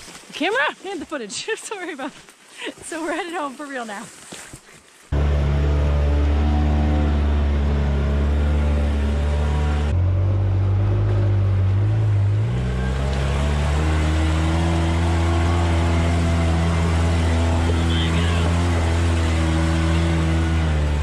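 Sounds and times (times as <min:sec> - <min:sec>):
utility vehicle engine running: 0:05.1 - 0:21.0.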